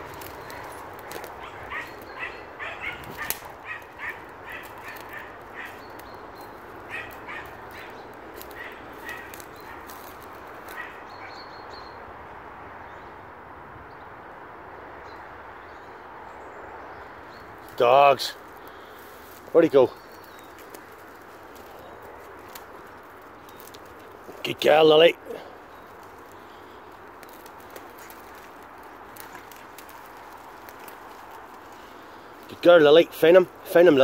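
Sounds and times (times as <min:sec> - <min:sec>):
dogs yelping: 0:00.0 - 0:11.3.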